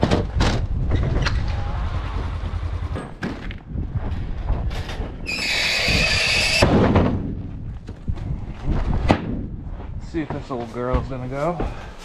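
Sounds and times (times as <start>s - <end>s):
steady low rumble: 0.4s - 5.2s.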